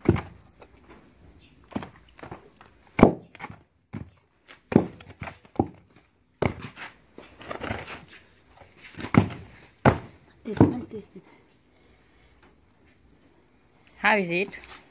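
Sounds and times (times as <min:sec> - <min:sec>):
pestle thudding in wooden mortar: 0:00.0 - 0:00.5, 0:01.7 - 0:06.8, 0:08.9 - 0:11.0.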